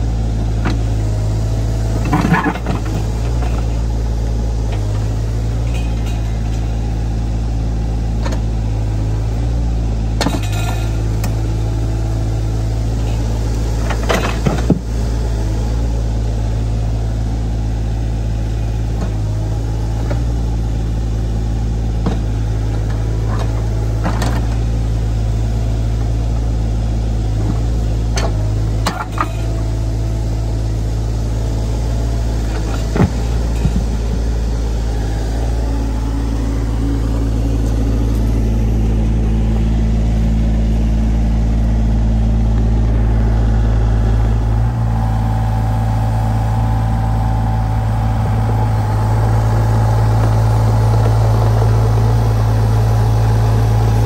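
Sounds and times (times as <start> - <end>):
excavator diesel engine: 0.0 - 54.0.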